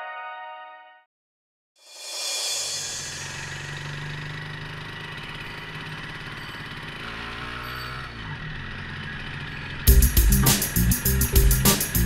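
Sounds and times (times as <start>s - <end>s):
motorcycle engine throbbing: 2.5s - 12.0s.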